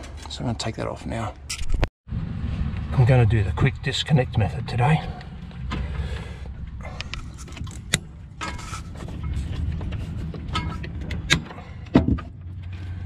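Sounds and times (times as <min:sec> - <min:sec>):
steady low rumble: 0:01.7 - 0:13.0
cables rattling and rustling: 0:04.9 - 0:13.0.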